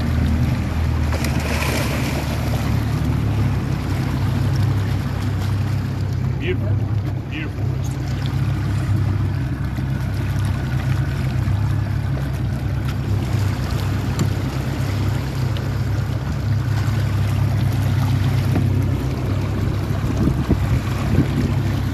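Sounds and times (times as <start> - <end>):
outboard motor rumbling: 0.0 - 21.9
water noise: 0.0 - 21.9
fish splashing at surface: 1.0 - 2.8.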